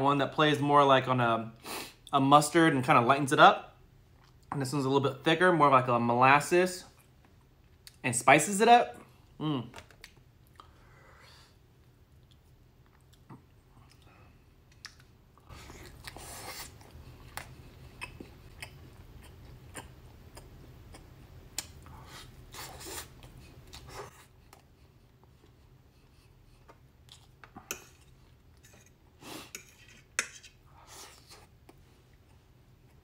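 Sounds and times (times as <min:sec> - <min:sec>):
man chewing meat: 0:11.7 - 0:28.7.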